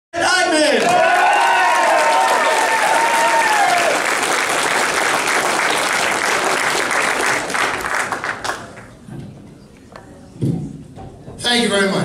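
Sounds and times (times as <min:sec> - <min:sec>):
audience applauding: 0:00.8 - 0:08.9.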